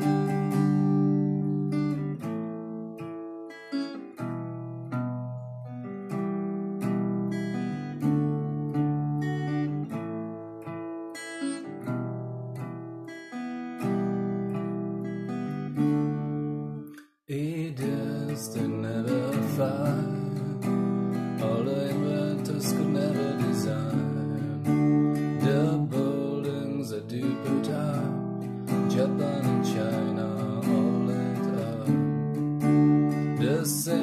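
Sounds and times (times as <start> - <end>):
man singing: 0.0 - 1.2, 17.3 - 32.4, 33.2 - 34.0
acoustic guitar strumming: 0.0 - 34.0.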